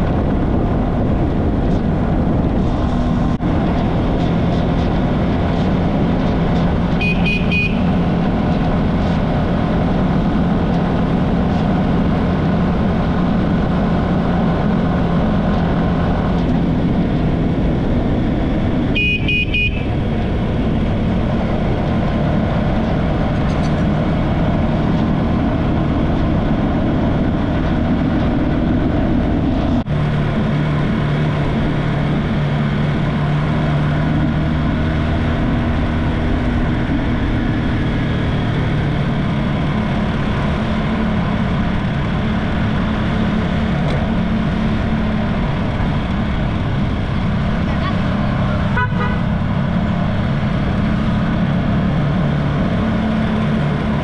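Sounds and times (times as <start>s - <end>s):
horn tooting: 6.9s - 8.1s, 18.9s - 20.0s, 47.7s - 49.4s.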